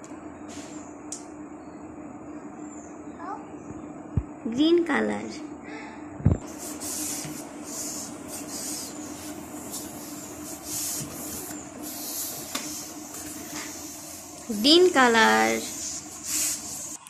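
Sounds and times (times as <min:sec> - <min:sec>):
faint steady hum: 0:00.0 - 0:17.0
balloon pump hissing puffs: 0:06.4 - 0:17.0.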